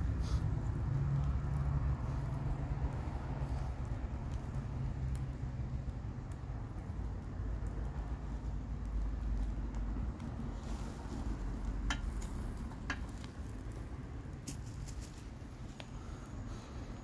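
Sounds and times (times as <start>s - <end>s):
sharp pops and clicks: 0.7s - 10.6s, 11.2s - 14.7s.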